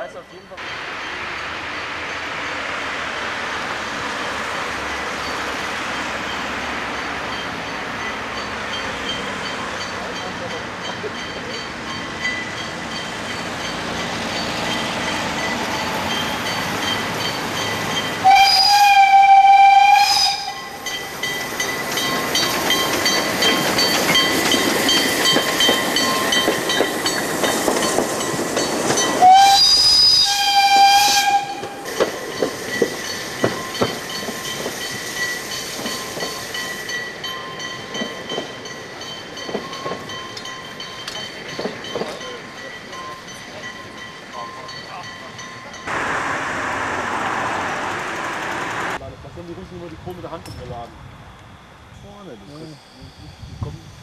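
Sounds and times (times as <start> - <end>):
train coaches passing: 0.0 - 54.0
wheels clicking over rail joints: 7.2 - 46.0
steam whistle blasts: 18.2 - 20.8, 29.2 - 31.9.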